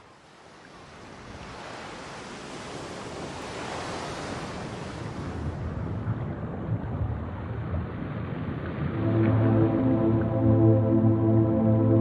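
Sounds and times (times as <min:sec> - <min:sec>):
sea waves rushing: 0:08.6 - 0:12.0.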